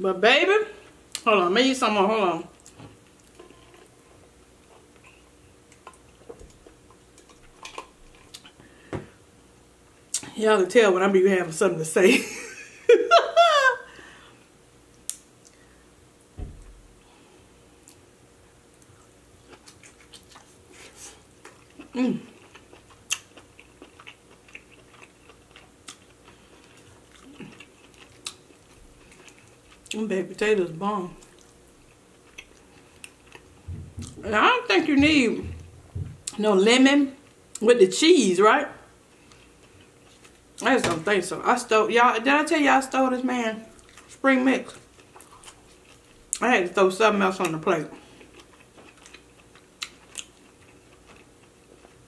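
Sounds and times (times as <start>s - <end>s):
wet chewing: 19.5s - 30.0s, 48.1s - 52.0s.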